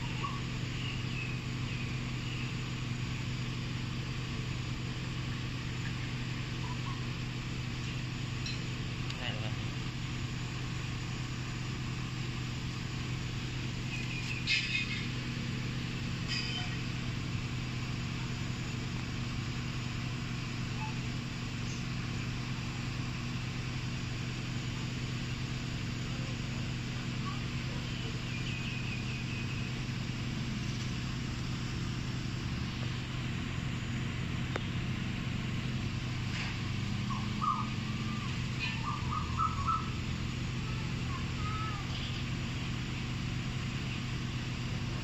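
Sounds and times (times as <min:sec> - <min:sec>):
small birds chirping: 0:00.0 - 0:02.9, 0:05.3 - 0:09.6, 0:13.4 - 0:15.6, 0:20.7 - 0:22.3, 0:27.0 - 0:31.0, 0:36.9 - 0:40.2
car engine idling: 0:00.0 - 0:45.0.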